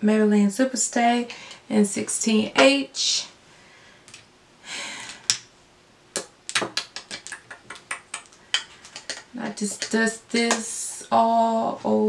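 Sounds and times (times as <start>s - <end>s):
small taps of makeup containers: 6.6s - 10.6s.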